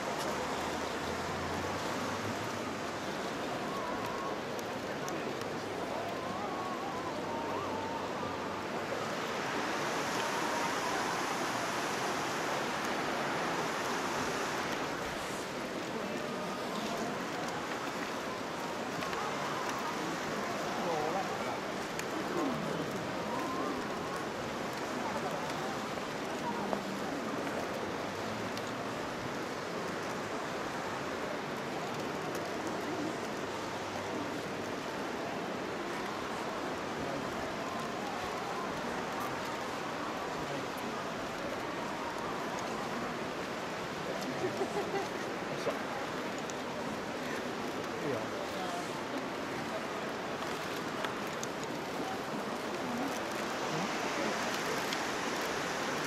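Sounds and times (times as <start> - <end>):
river water rushing over rocks: 0.0 - 56.0.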